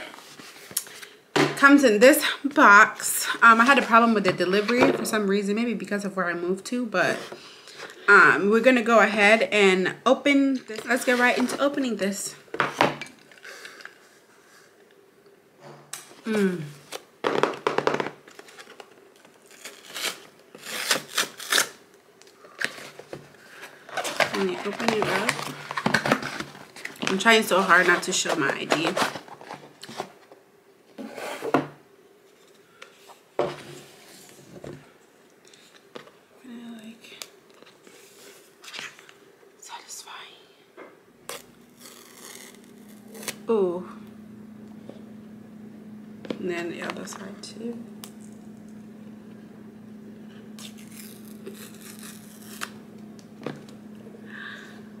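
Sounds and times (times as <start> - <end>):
paper tearing: 19.4 - 21.8, 41.3 - 43.4, 50.6 - 52.8
cardboard rustling: 22.5 - 30.3
steady low hum: 35.8 - 55.0.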